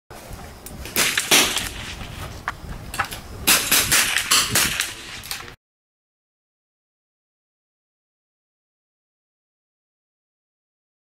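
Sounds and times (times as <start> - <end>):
rifle shots: 0.9 - 2.2, 3.4 - 5.5.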